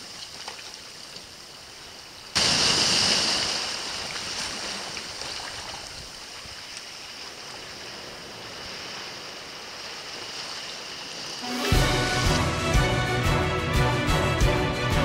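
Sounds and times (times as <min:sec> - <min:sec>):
small waves on rocky shore: 0:00.0 - 0:12.5
music: 0:11.4 - 0:15.0.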